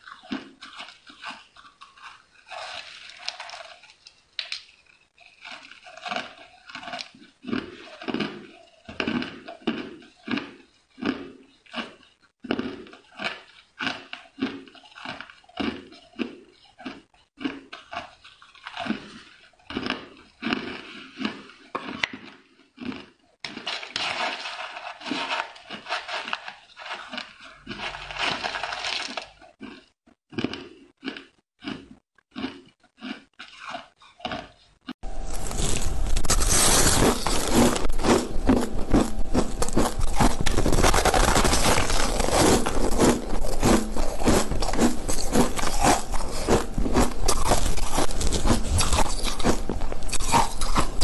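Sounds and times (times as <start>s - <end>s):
ice being chewed: 0.0s - 51.0s.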